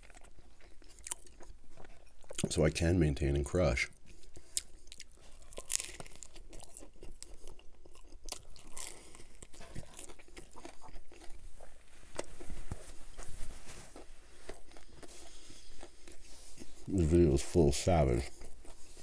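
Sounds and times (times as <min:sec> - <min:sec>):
wet chewing: 0:00.0 - 0:02.6, 0:03.9 - 0:19.0
crunchy bites: 0:04.4 - 0:12.9.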